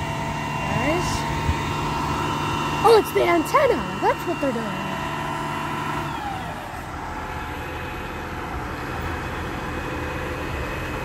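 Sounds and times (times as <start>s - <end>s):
truck engine running: 0.0s - 11.0s.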